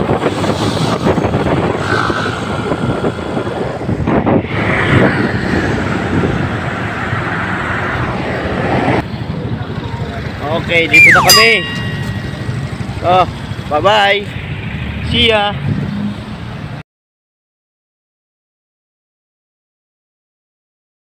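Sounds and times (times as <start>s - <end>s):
wind rushing over microphone: 0.0s - 9.1s.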